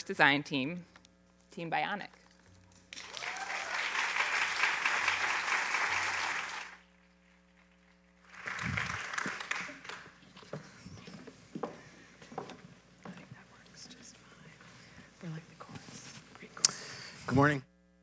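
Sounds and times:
audience applauding: 2.9 - 6.8, 8.2 - 10.2.

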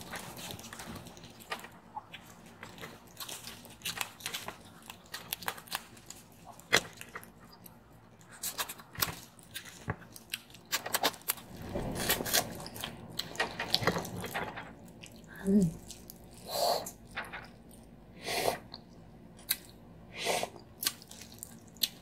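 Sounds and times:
person chewing: 14.1 - 17.9, 20.4 - 22.0.

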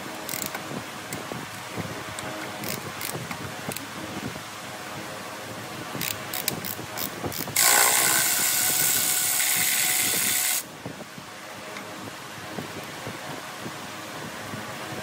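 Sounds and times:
ratchet wrench clicking: 0.3 - 0.6, 2.6 - 3.2, 6.0 - 10.6
loud steady hiss: 7.5 - 10.8.

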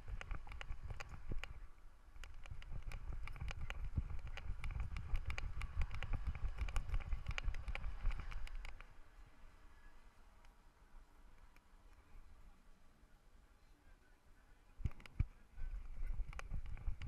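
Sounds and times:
camera clicking and knocking: 0.0 - 1.6, 2.2 - 8.9, 14.8 - 15.3, 15.9 - 17.0
low rumble of camera shaking: 0.0 - 9.0, 14.8 - 17.0.

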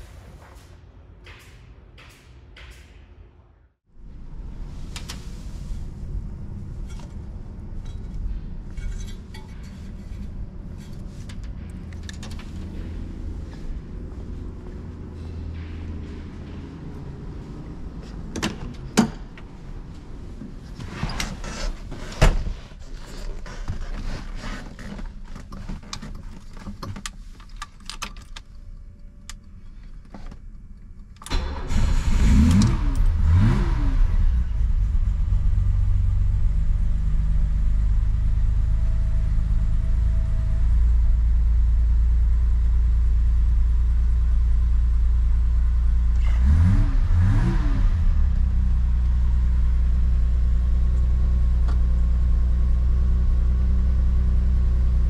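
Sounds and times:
car engine starting and idling: 4.0 - 22.5, 30.5 - 55.0.

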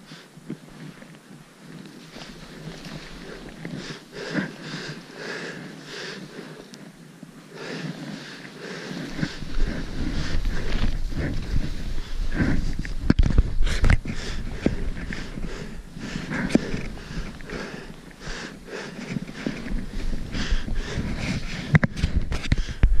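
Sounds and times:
footsteps crunching in snow: 0.8 - 22.7
person breathing hard: 2.3 - 23.0.

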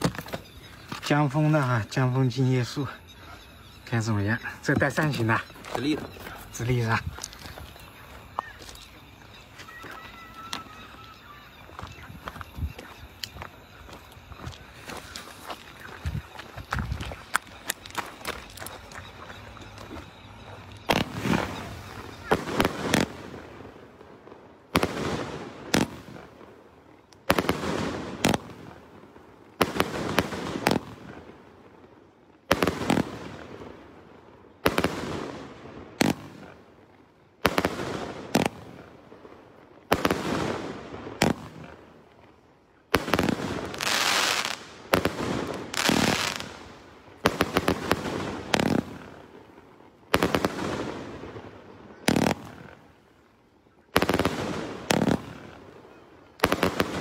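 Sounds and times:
fireworks shots and bursts: 20.6 - 31.6, 32.4 - 36.8, 37.4 - 42.1, 42.8 - 57.0.

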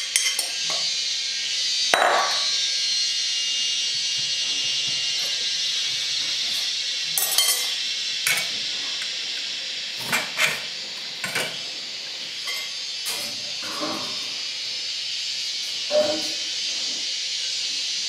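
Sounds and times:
steady hiss: 0.0 - 18.0
metal spoon scraping a metal bowl: 12.4 - 14.3, 15.9 - 16.4.

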